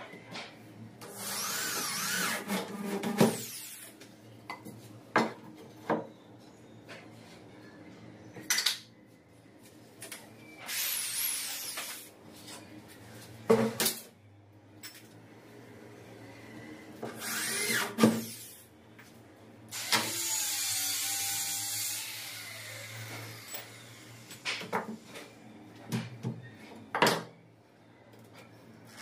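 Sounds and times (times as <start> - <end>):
electric drill boring: 1.1 - 2.4, 17.2 - 18.6, 19.7 - 24.3.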